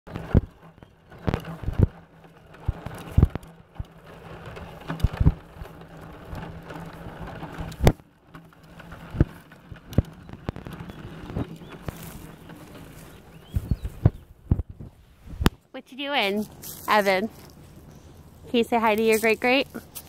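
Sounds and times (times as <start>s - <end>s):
knocks and bumps: 0.1s - 15.6s
plastic wheels rattling on concrete: 0.1s - 15.6s, 16.2s - 20.0s.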